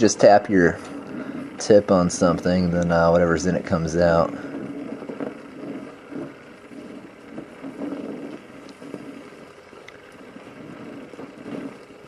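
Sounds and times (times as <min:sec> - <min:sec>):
welding torch flame hissing: 0:00.0 - 0:12.0
faint ticks: 0:04.3 - 0:12.0.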